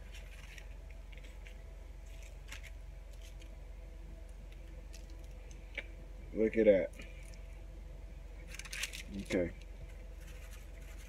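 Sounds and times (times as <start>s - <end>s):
parchment paper rustling: 0.0s - 3.5s, 8.4s - 11.0s
steady low hum: 0.0s - 11.0s.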